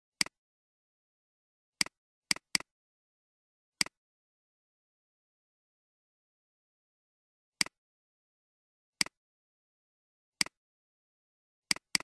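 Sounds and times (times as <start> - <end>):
computer mouse click: 11.7 - 12.0.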